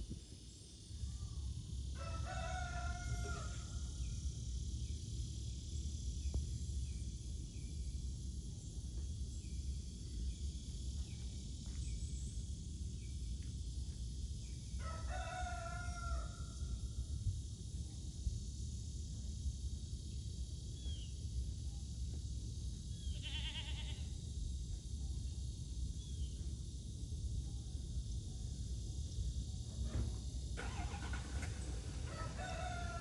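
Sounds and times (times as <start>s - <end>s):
rooster crowing: 2.0s - 3.8s, 14.8s - 16.6s, 32.0s - 33.0s.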